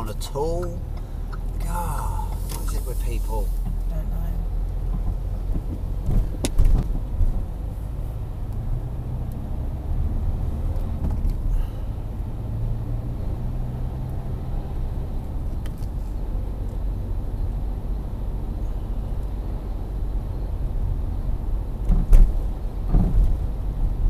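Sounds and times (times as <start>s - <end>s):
car engine and road noise: 0.0s - 24.0s.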